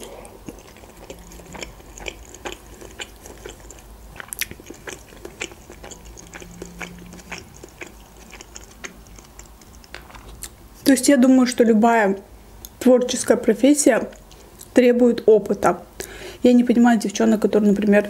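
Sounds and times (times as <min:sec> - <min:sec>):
close chewing mouth smacks: 0:00.0 - 0:10.6.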